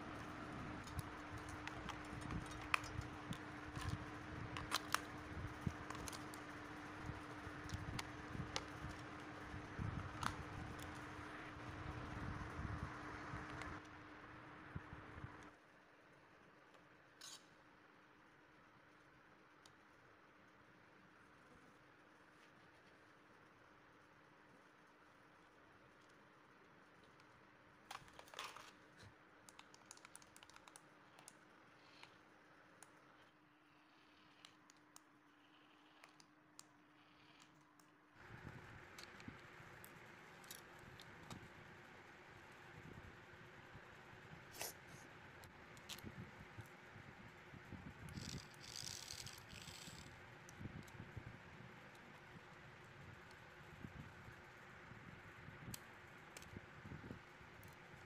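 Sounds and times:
faint steady hum: 0.0 - 58.0
plastic clicks and handling: 0.2 - 9.2, 10.0 - 11.1, 27.9 - 32.2.

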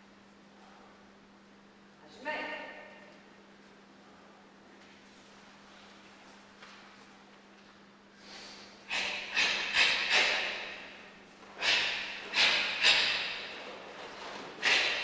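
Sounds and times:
sharp forceful exhalations: 8.1 - 13.6, 14.6 - 15.0.

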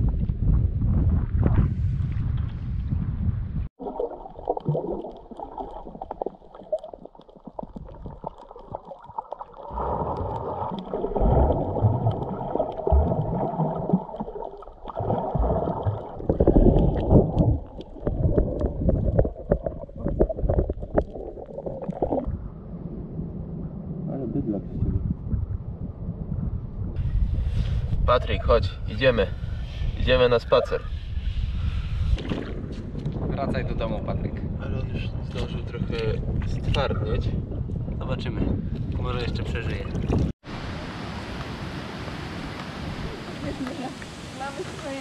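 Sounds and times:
wind buffeting microphone: 0.0 - 3.7, 22.1 - 40.8
underwater water gurgling and sloshing: 0.0 - 28.6, 29.3 - 45.0.

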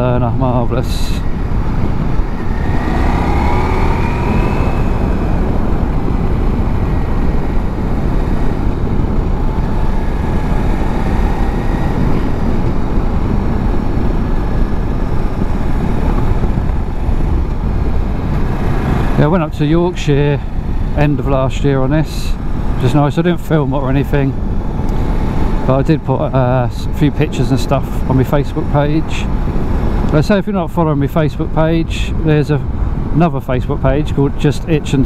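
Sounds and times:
wind rush on microphone: 0.0 - 35.0
motorcycle engine revving: 1.2 - 21.2.

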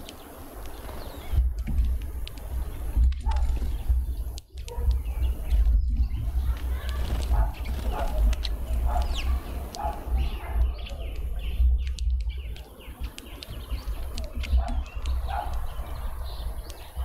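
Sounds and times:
small birds chirping: 0.0 - 17.0
steady low rumble: 0.0 - 17.0
sharp ticks: 6.5 - 17.0.

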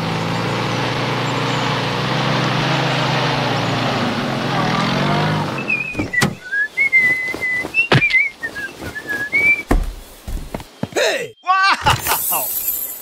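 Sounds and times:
person whistling a tune: 5.8 - 9.6
sharp knocks: 9.7 - 10.6.

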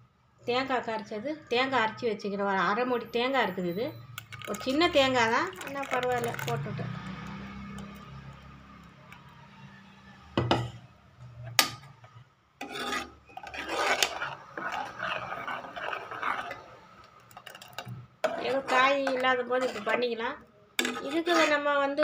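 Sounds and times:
spoon scraping a metal pot: 12.6 - 22.0.

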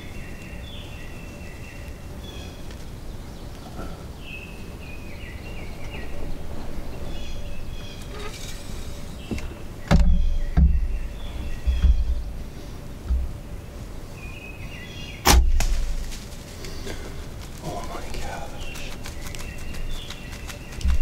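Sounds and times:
low thumps of movement: 5.6 - 13.8.

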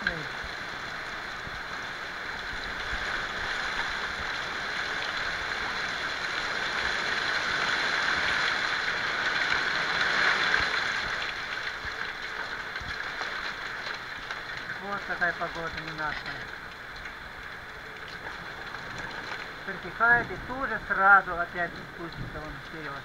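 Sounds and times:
hail and rain pelting roofs: 0.0 - 23.0
gusty wind: 16.8 - 23.0.

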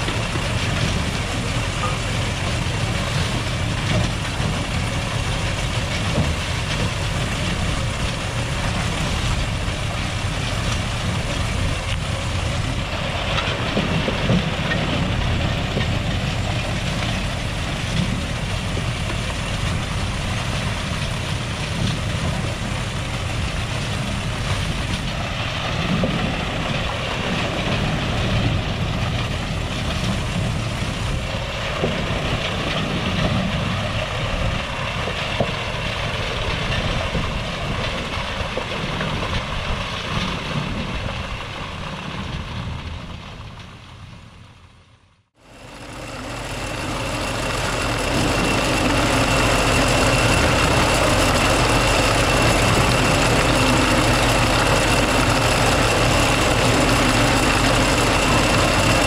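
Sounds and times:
harvest machinery engine din: 0.0 - 59.0.

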